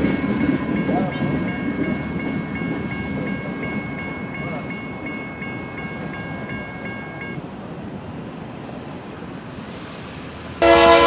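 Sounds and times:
crossing warning bell ringing: 0.0s - 7.4s, 10.6s - 11.0s
locomotive horn: 10.6s - 11.0s.

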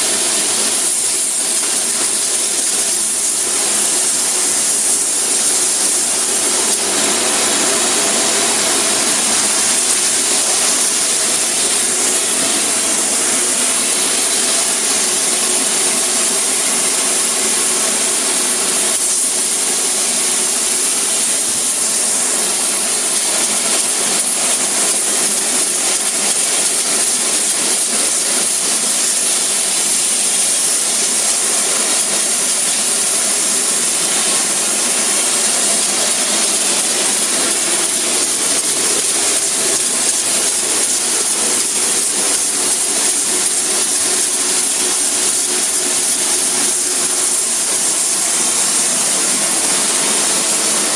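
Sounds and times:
spray-foam gun hissing: 0.0s - 50.9s.

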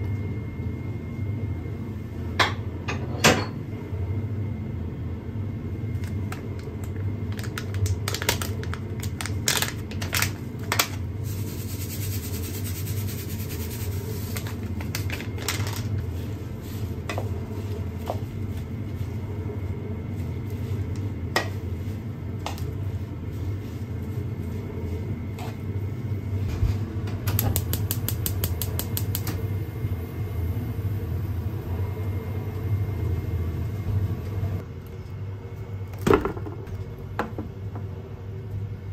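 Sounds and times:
low hum: 11.2s - 35.8s.

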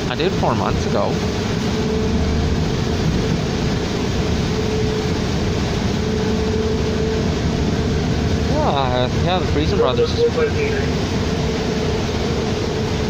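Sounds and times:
bus engine and road rumble: 0.0s - 13.0s
steady whine: 0.0s - 13.0s.

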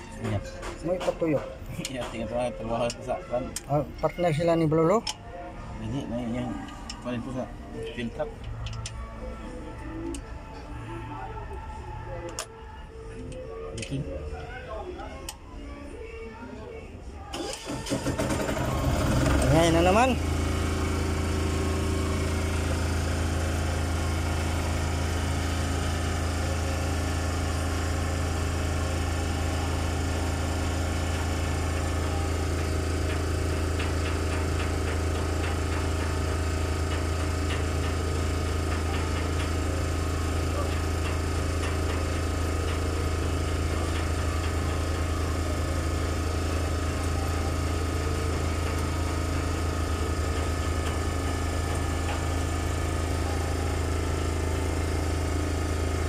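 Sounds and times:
engine running steadily: 17.3s - 56.0s.

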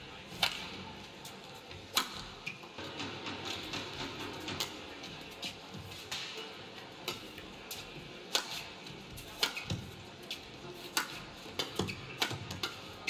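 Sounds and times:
rackets striking shuttlecock: 0.4s - 0.7s, 1.9s - 2.6s, 8.3s - 8.7s, 9.4s - 9.9s, 10.9s - 12.9s.

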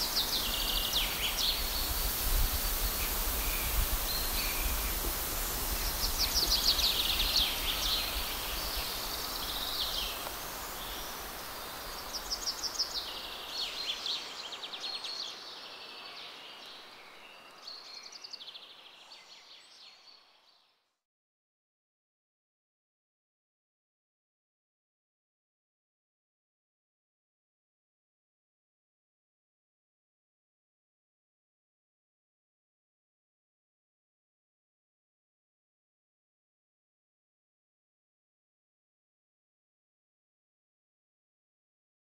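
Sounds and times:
steady hiss: 0.0s - 15.8s
songbird singing: 0.0s - 20.9s.

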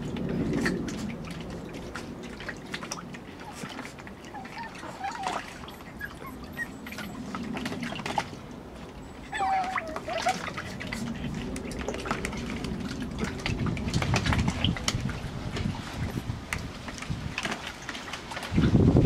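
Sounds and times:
puppies splashing in water: 0.0s - 19.0s
puppy whining: 4.2s - 7.8s, 9.0s - 11.3s.

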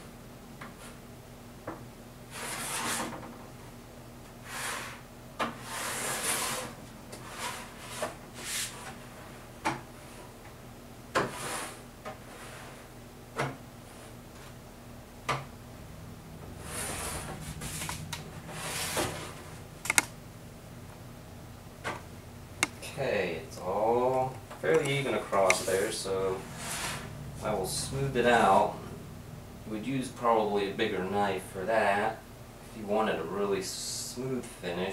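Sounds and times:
sharp clicks: 19.8s - 20.2s, 22.6s - 22.8s, 24.3s - 25.6s.

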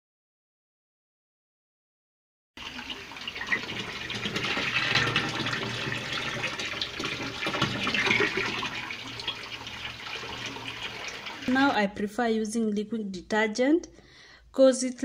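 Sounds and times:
water pouring into plastic tub: 2.6s - 11.8s.

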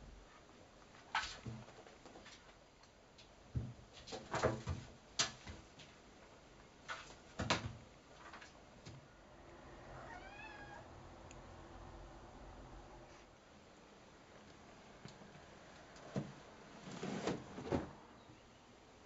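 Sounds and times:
cat meowing: 9.9s - 10.9s.

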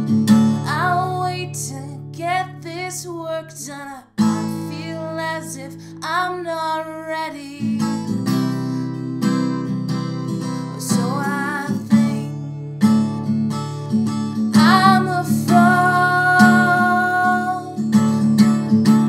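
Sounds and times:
strummed acoustic guitar: 0.0s - 2.8s, 4.2s - 6.6s, 7.6s - 19.0s
woman singing: 0.6s - 8.9s, 10.6s - 12.5s, 14.5s - 17.8s.

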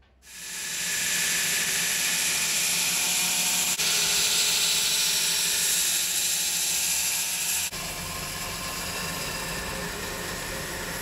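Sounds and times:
belt grinder grinding steel: 0.3s - 11.0s
motor low hum: 7.7s - 11.0s.

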